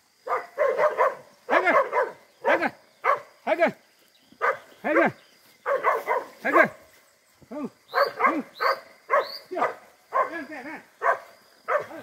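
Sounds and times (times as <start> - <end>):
dog barking: 0.2 - 3.3, 4.4 - 6.8, 7.9 - 12.0.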